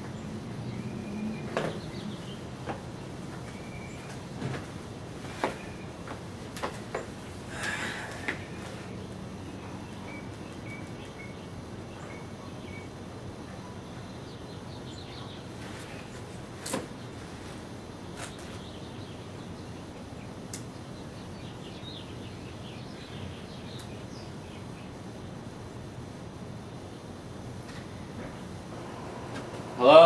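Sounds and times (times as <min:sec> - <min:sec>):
outdoor background noise: 0:00.0 - 0:30.0
faint bird chirps: 0:09.4 - 0:16.0.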